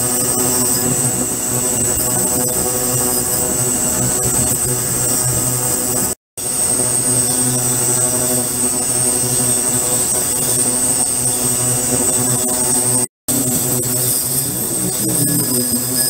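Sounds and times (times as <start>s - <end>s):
high whine: 0.0s - 16.0s.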